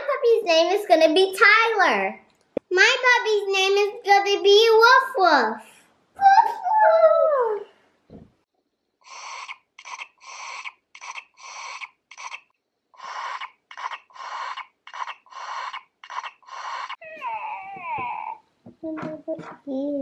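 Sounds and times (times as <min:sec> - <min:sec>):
toy electronic sucking sounds: 0:09.0 - 0:17.0.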